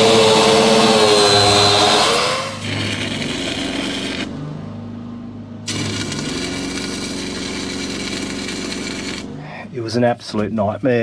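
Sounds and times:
welding arc hissing: 0.0 - 4.3, 5.7 - 9.3.

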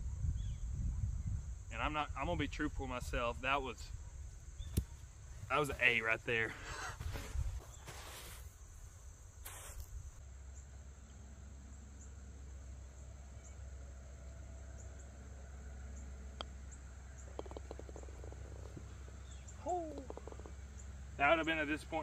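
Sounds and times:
putter striking golf ball: 17.2 - 18.8.

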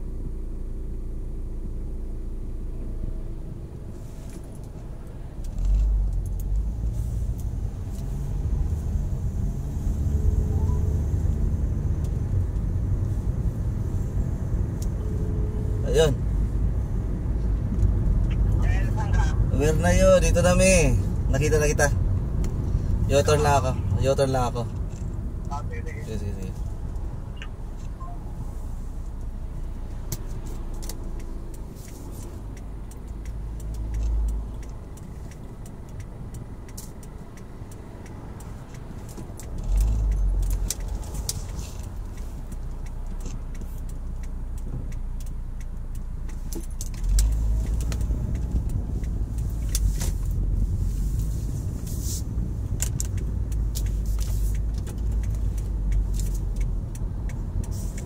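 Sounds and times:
vehicle engine and road rumble: 0.0 - 58.0
light rattles and clicks: 29.0 - 58.0.

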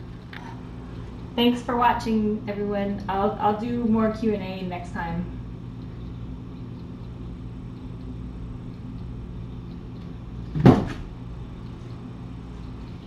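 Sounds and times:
steady low hum: 0.0 - 13.0
door shutting: 10.5 - 11.1.

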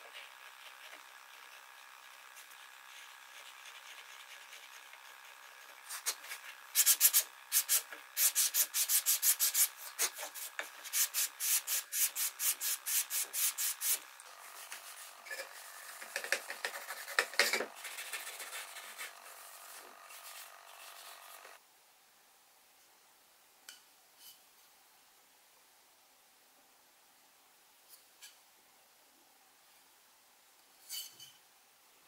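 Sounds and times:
sandpaper rubbing on wood: 2.4 - 21.6.

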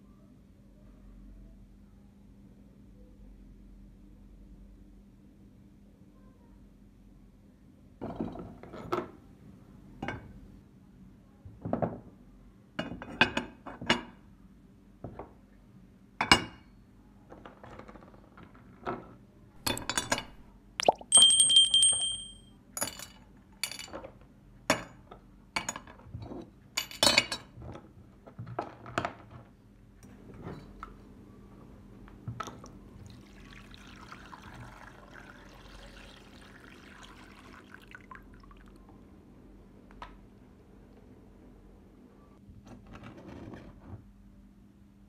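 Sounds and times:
bright ringing tone: 20.8 - 22.4
metal parts clinking in a dish: 21.1 - 24.0.

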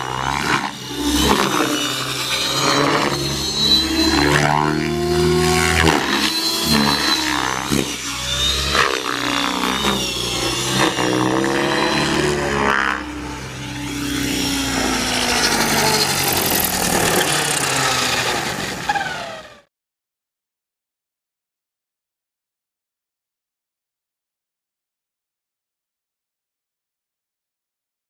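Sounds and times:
rc helicopter motor whine: 0.0 - 19.7
rotor blades rushing: 0.0 - 19.7.

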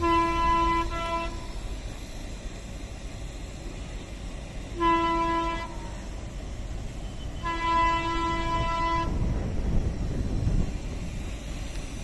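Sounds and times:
locomotive horn blasts: 0.0 - 1.5, 4.7 - 6.0, 7.4 - 9.2
locomotive rumble: 0.0 - 12.0.

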